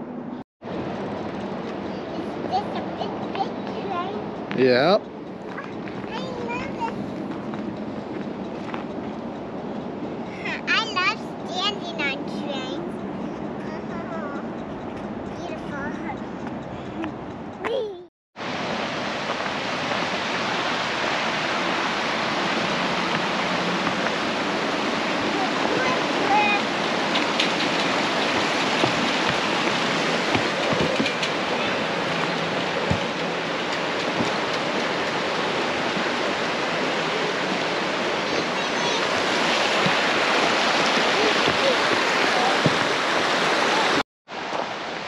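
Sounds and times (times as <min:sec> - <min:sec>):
creek rushing over rocks: 0:18.4 - 0:45.0.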